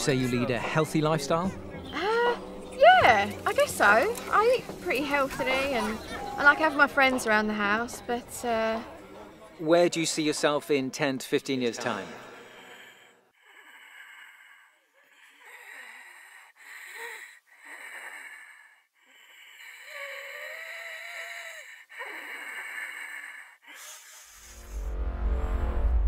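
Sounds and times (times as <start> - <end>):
low dark music: 0.0 - 9.5
woman wheezing breathing: 12.2 - 24.8.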